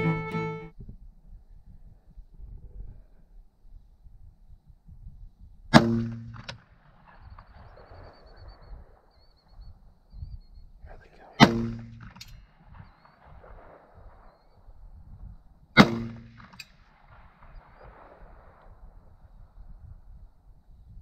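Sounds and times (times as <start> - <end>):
rifle shots: 5.7 - 9.2, 11.2 - 14.6, 15.8 - 19.1.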